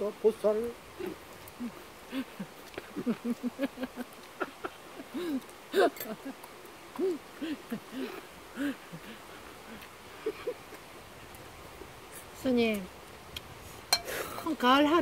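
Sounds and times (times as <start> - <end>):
person chuckling mouth closed: 1.0 - 9.1
voiced laugh: 1.6 - 10.9.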